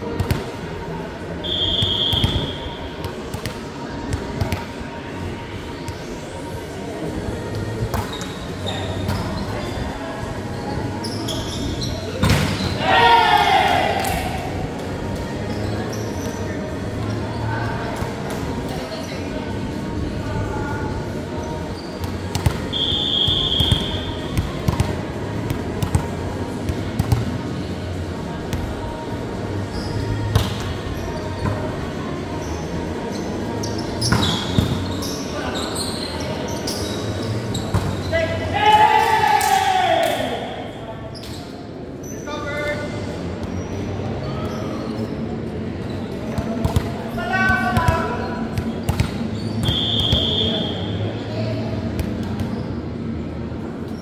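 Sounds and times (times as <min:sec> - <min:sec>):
referee's whistle: 0:01.4 - 0:02.8, 0:22.7 - 0:24.1, 0:49.6 - 0:51.0.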